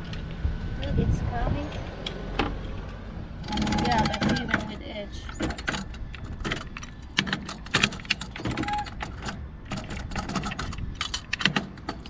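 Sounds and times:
window scraping and creaking: 1.8s - 12.0s
short squeak: 8.4s - 9.0s.

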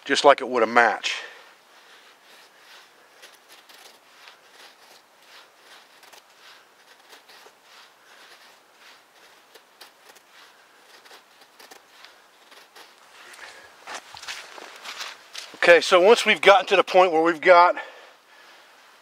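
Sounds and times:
knife scraping wood: 1.7s - 15.6s.

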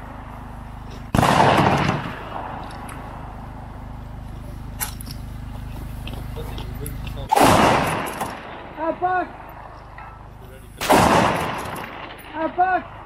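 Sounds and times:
rifle shot: 1.1s - 3.0s, 7.3s - 13.0s.

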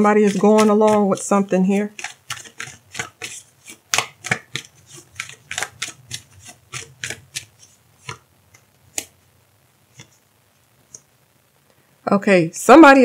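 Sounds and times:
cards being shuffled: 0.0s - 9.2s.

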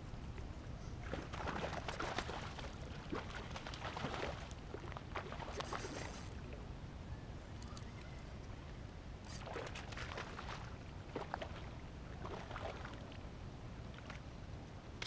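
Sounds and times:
fish splashing in water: 1.1s - 6.3s.

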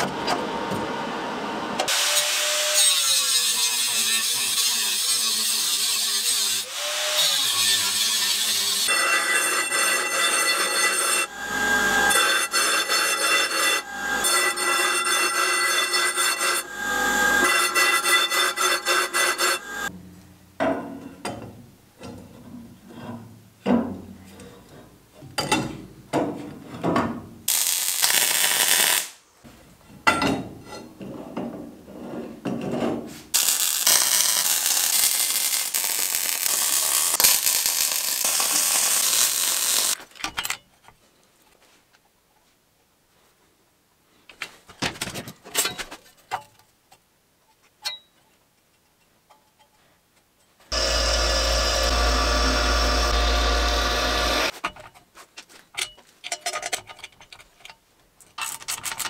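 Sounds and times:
chop saw cutting steel: 1.8s - 19.9s, 33.4s - 40.0s, 50.7s - 54.6s
welder crackling: 7.4s - 19.9s, 27.5s - 29.2s, 33.3s - 40.0s, 50.7s - 54.5s.

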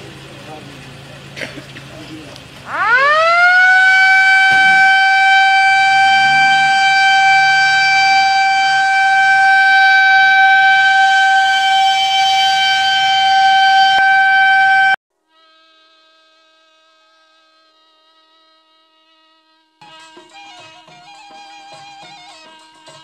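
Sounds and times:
ambulance siren steady tone: 2.7s - 15.0s.

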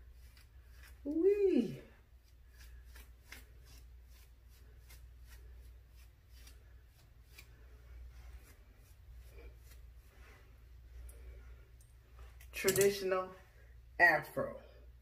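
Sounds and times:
pick scratching through hair: 0.0s - 11.3s.

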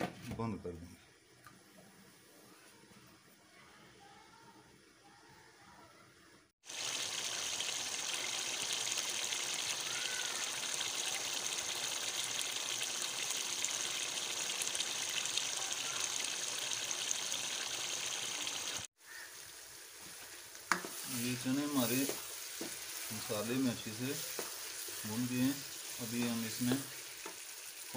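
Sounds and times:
chickpeas sizzling in a pan: 6.6s - 27.9s.

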